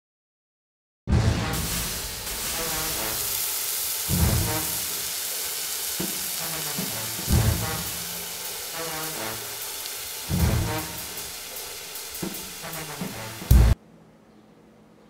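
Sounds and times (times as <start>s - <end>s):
theme music with deep bass hits: 1.1s - 2.2s, 4.1s - 4.6s, 7.2s - 8.0s, 10.3s - 11.2s, 12.2s - 13.8s
food sizzling in a wok: 1.4s - 13.8s.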